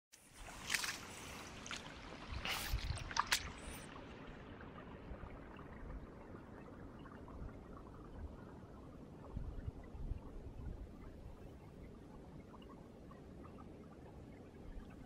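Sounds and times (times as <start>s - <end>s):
footsteps splashing through water: 0.3s - 3.8s.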